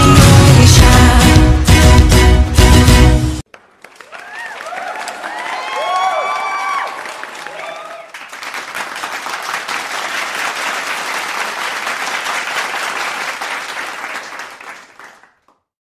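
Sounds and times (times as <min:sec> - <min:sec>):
audience applauding: 0:03.5 - 0:15.6.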